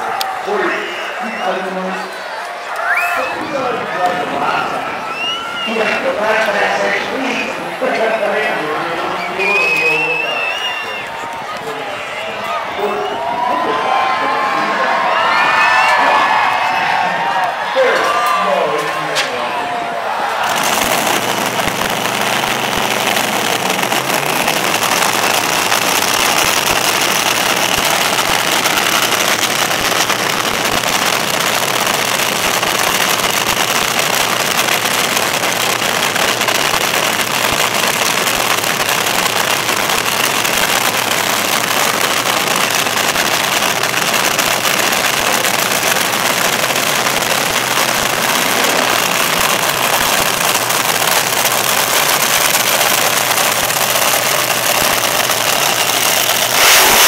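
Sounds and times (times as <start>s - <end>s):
dragster engine idling: 20.6s - 31.7s, 48.0s - 57.0s.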